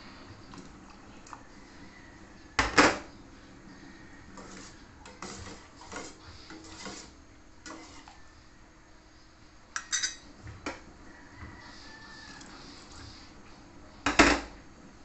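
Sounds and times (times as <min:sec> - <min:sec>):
spoon scraping metal pot: 0:04.4 - 0:08.2.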